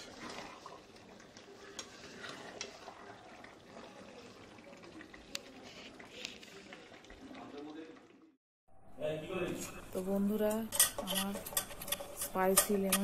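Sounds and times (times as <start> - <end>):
light kitchen noise: 0.0 - 8.3, 9.0 - 13.0
utensil clinking against cookware: 10.4 - 13.0.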